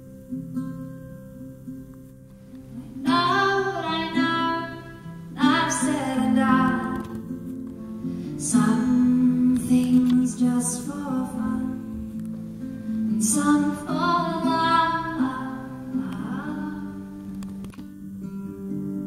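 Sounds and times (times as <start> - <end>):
acoustic guitar: 0.0 - 19.0
woman singing: 2.7 - 7.2, 8.4 - 12.2, 13.0 - 17.7.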